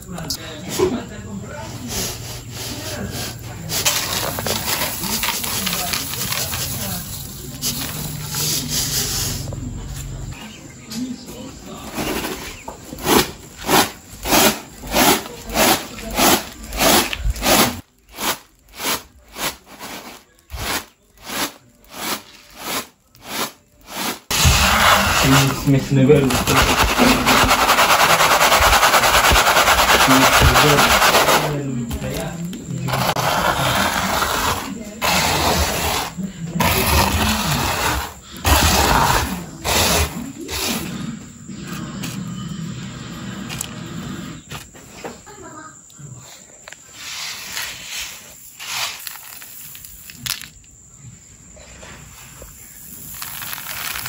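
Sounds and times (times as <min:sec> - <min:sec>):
rice rattling on winnowing tray: 0:03.7 - 0:09.4, 0:13.7 - 0:31.6, 0:47.2 - 0:50.4, 0:52.8 - 0:54.0.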